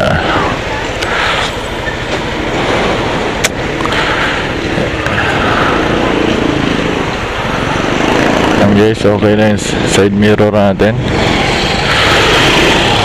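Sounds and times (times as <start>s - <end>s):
scooter engine idling: 0.0s - 8.9s.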